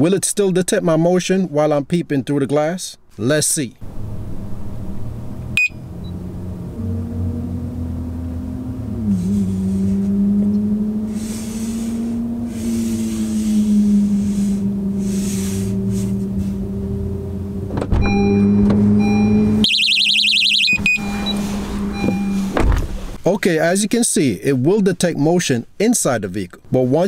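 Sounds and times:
low vehicle hum: 3.8 - 23.3
car alarm siren warbling: 5.6 - 6.2, 18.0 - 22.6
thunk: 22.5 - 23.0.

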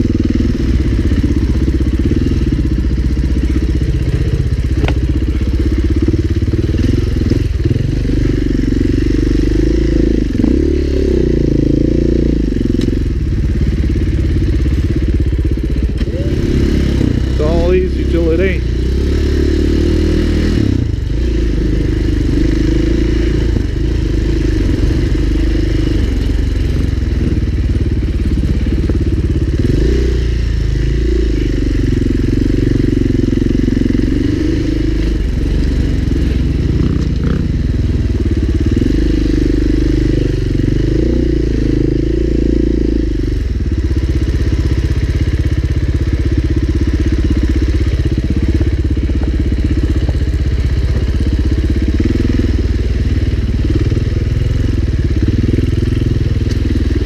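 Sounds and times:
dirt bike engine revving: 0.0 - 45.2.

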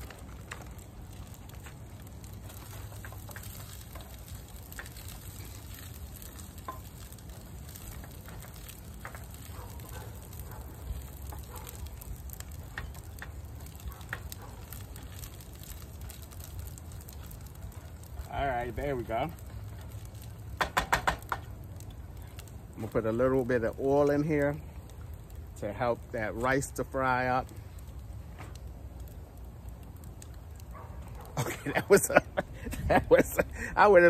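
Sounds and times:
food sizzling in a frying pan: 0.0 - 24.8.

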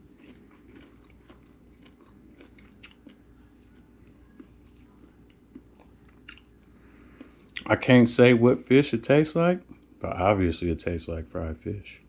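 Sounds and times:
person chewing crunchy food: 0.0 - 7.7.

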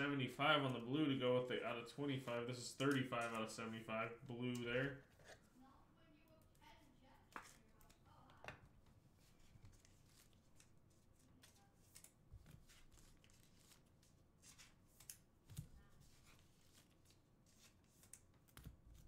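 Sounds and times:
trading cards rustling and clicking: 2.0 - 5.5, 7.3 - 19.0.

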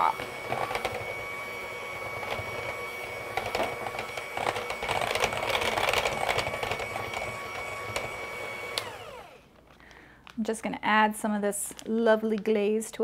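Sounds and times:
mixer beaters clicking: 0.0 - 9.4
electric hand mixer whining: 0.0 - 9.6.

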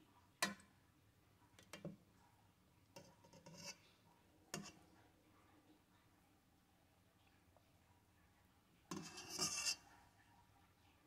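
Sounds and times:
metal spoon tapping a pot: 0.4 - 0.7.

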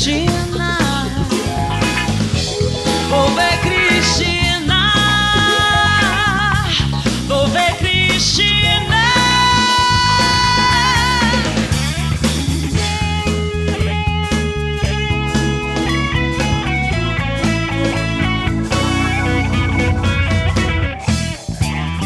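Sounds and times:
band playing upbeat song: 0.0 - 22.0
bass line: 0.0 - 22.0
held melodic notes with vibrato: 0.5 - 7.0, 18.7 - 21.4.

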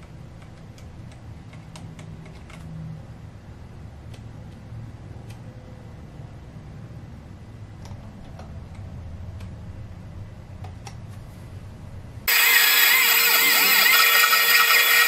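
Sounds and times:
milling machine cutting metal: 12.3 - 15.0.

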